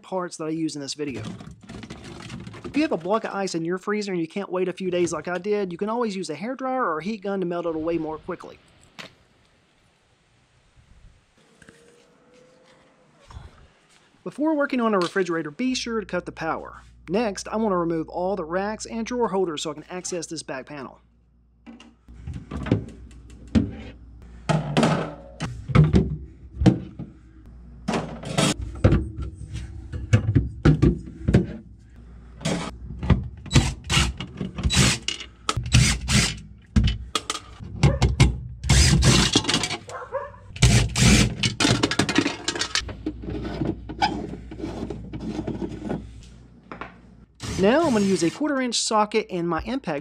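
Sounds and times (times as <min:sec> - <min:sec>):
plastic and wire racks clattering: 0:01.1 - 0:03.4, 0:32.4 - 0:46.2.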